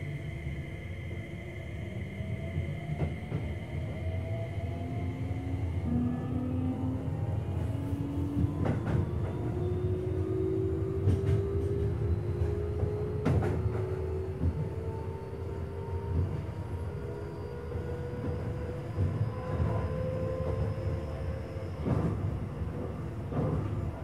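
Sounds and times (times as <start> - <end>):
wheel and track rumble: 10.5 - 14.7
train wheels clacking on rails: 10.9 - 14.9, 21.8 - 24.0.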